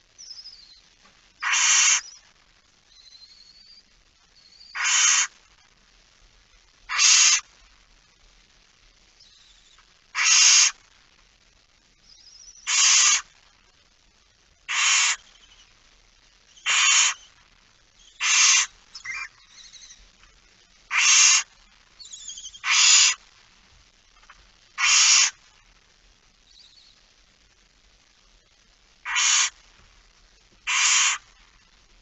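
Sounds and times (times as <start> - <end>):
faint high twittering: 0.1 - 5.3, 9.2 - 10.8, 11.9 - 13.3, 14.7 - 15.8, 16.4 - 23.2, 26.4 - 27.1
owl harsh hissing calls: 1.4 - 2.2, 4.4 - 5.4, 6.9 - 7.5, 9.2 - 10.8, 12.0 - 13.4, 14.7 - 15.8, 16.5 - 17.4, 18.0 - 20.0, 20.9 - 23.2, 24.2 - 25.5, 29.0 - 29.7, 30.6 - 31.4.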